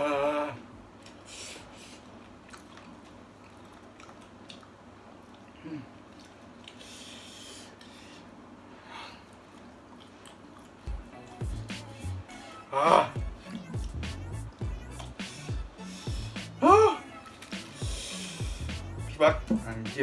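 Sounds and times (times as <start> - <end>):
quiet chewing: 1.0 - 8.4, 9.2 - 12.6, 14.6 - 15.2.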